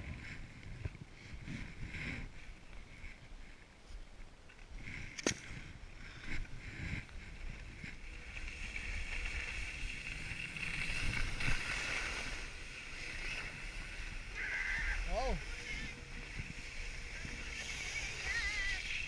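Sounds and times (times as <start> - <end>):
wind rumbling on microphone: 0.0 - 19.0
skis hissing over snow: 6.1 - 19.0.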